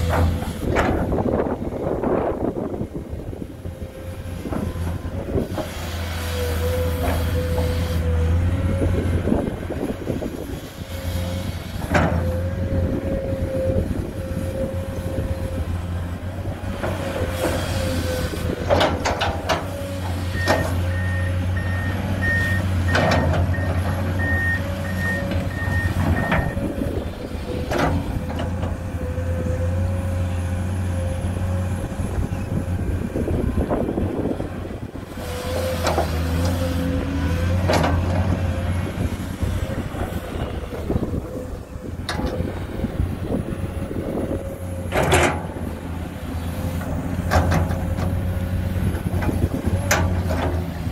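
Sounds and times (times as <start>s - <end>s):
excavator diesel engine running: 0.0s - 50.9s
reversing alarm beeps: 20.4s - 23.0s.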